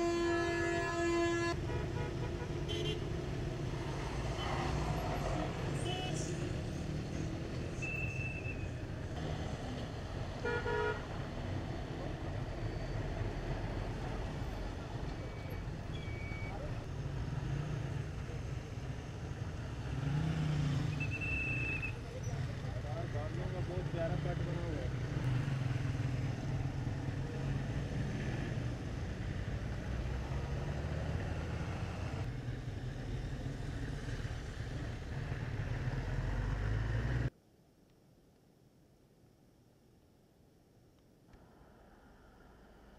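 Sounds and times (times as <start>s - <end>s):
vehicle horn toots: 0.0s - 3.0s
road traffic rumble: 0.0s - 37.3s.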